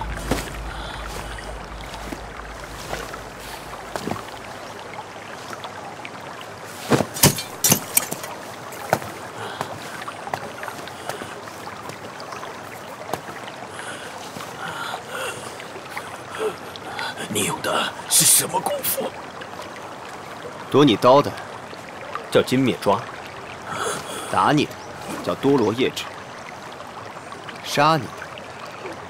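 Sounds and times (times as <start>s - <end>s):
fight strikes and hits: 7.0s - 8.3s.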